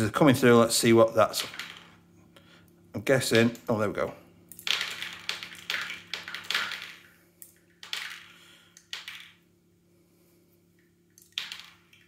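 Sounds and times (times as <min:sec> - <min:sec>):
plastic pellets clicking and rattling: 0:01.4 - 0:01.9, 0:04.6 - 0:09.4, 0:11.2 - 0:12.0.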